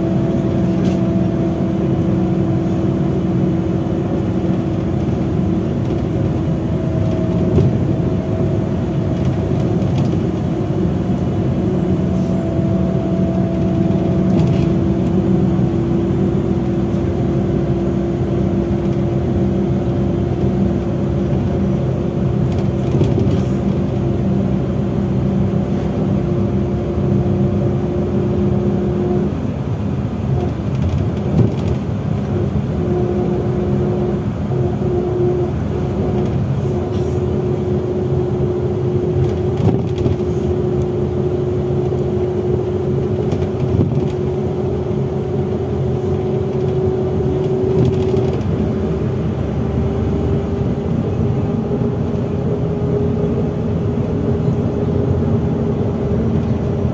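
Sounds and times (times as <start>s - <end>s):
bus engine drone: 0.0s - 56.9s
drivetrain whine: 0.0s - 56.9s
bus body knocks and rattles: 3.8s - 11.0s, 13.3s - 17.2s, 18.6s - 24.5s, 30.1s - 32.8s, 35.7s - 48.9s.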